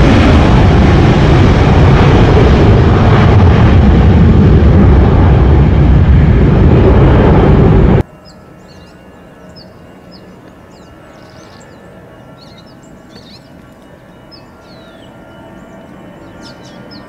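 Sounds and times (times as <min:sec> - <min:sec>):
jet engines humming and whining: 0:00.0 - 0:17.0
birds chirping: 0:08.0 - 0:17.0.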